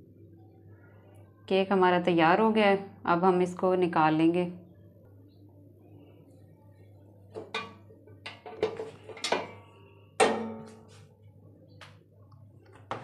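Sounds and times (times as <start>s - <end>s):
cake tin clanking in steel pot: 7.4s - 9.6s, 10.2s - 10.9s.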